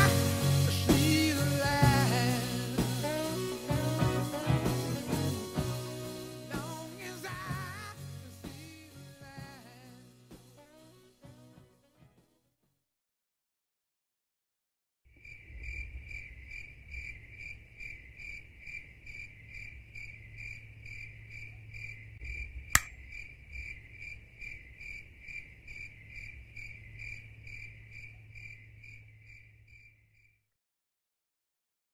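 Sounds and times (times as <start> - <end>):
cricket chirping: 15.1 - 30.4
sharp click: 22.8 - 23.0.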